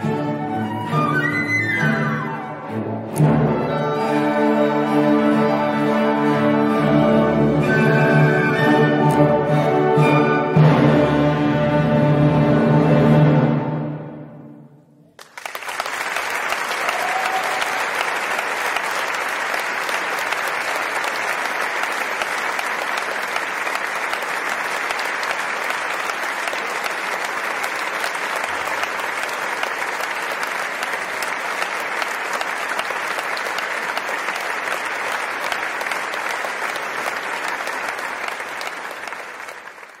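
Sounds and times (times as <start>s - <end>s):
audience applauding: 15.2s - 40.0s.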